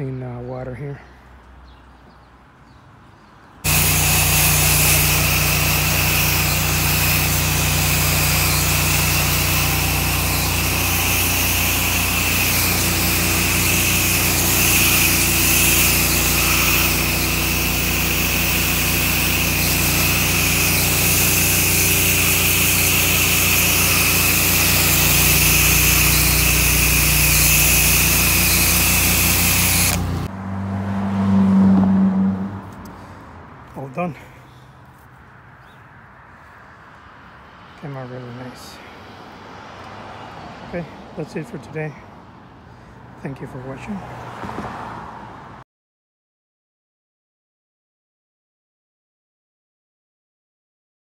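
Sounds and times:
engine and pump running: 3.6 - 30.3
pressure washer spray hissing: 3.7 - 30.3.

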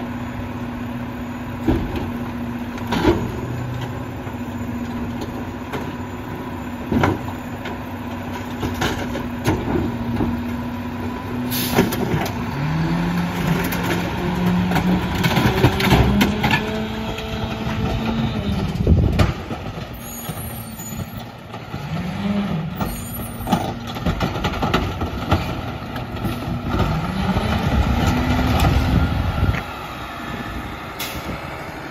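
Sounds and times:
garbage truck diesel engine: 0.0 - 31.9
air brakes hissing: 11.5 - 12.0, 31.0 - 31.4.

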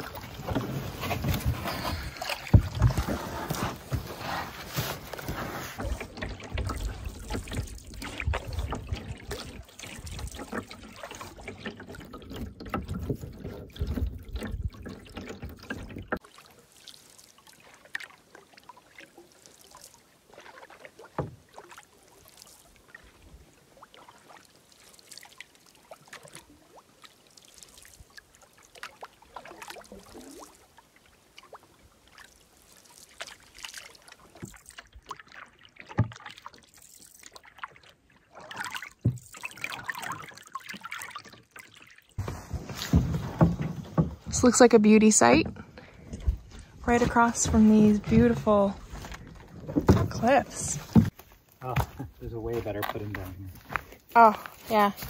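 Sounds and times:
paddle strokes in water: 0.0 - 55.0
water dripping off paddle: 5.6 - 23.1, 23.8 - 42.4.

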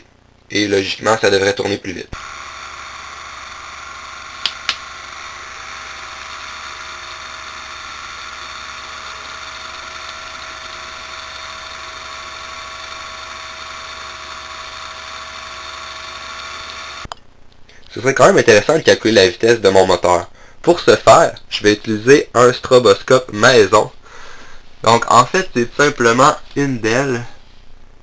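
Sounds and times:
sharp clicks: 4.4 - 4.9.

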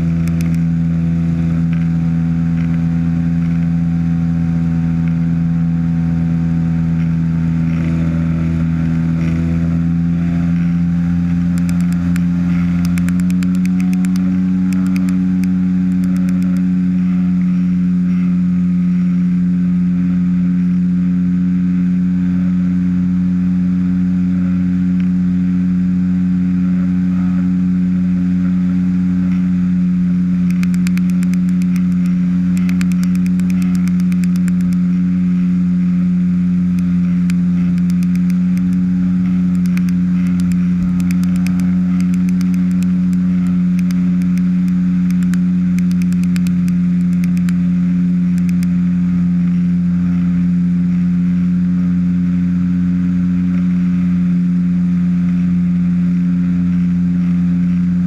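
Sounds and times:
ultralight engine and propeller: 0.0 - 58.0.

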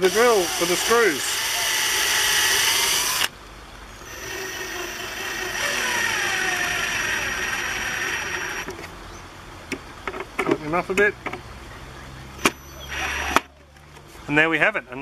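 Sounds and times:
cordless drill driving a screw: 0.0 - 3.3, 4.0 - 8.7, 12.9 - 13.4.

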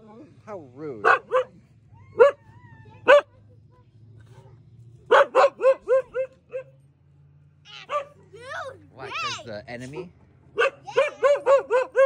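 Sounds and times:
dog barking: 1.0 - 1.6, 2.2 - 3.4, 4.3 - 6.8, 7.8 - 8.3, 10.5 - 12.0.

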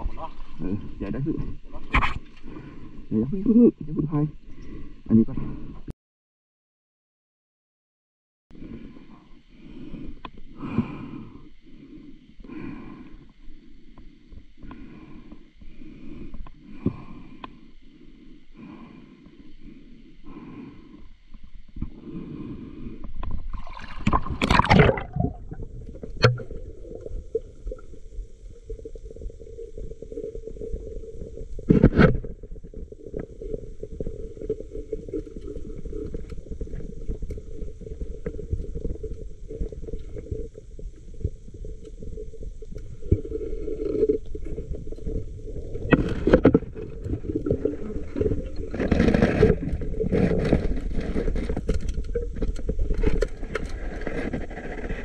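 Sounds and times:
water bursts and scraping: 0.0 - 3.0, 23.0 - 55.0
muffled underwater rush: 22.0 - 55.0.

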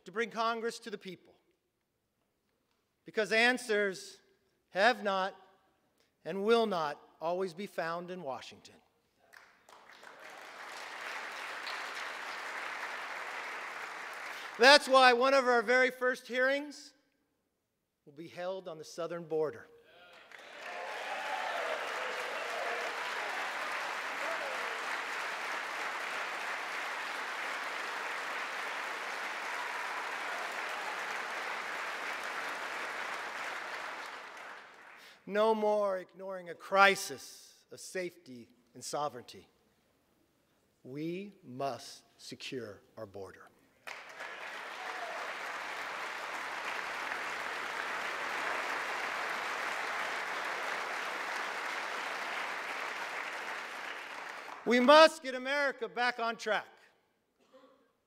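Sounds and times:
large audience applauding: 9.3 - 15.0, 20.1 - 35.1, 43.8 - 55.1.

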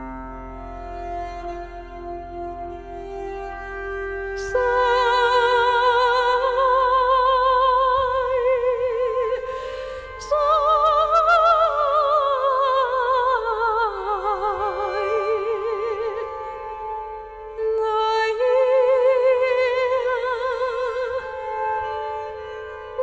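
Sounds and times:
bowed string drone: 0.0 - 23.0
woman singing with vibrato: 4.4 - 16.4, 17.6 - 21.5.

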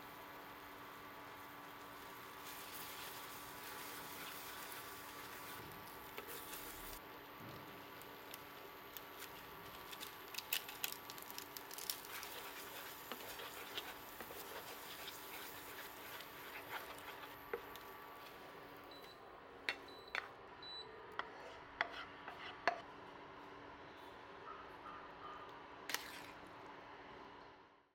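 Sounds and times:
noodles sizzling: 0.0 - 19.1
spatula scraping pan: 11.8 - 18.4, 21.2 - 22.8.

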